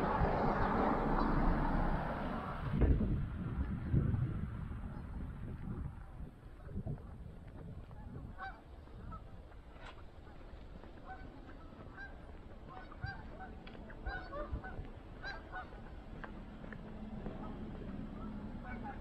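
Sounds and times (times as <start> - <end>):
steady low rumble: 0.0 - 19.0
flock of waterfowl calling: 8.0 - 16.0, 17.3 - 19.0.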